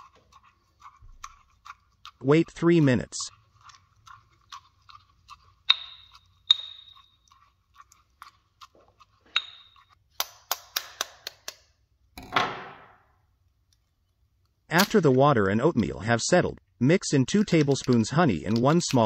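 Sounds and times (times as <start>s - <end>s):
mortar and pestle crushing oats: 0.0s - 11.5s, 17.1s - 19.0s
eggshell cracking: 3.3s - 8.7s, 17.4s - 19.0s.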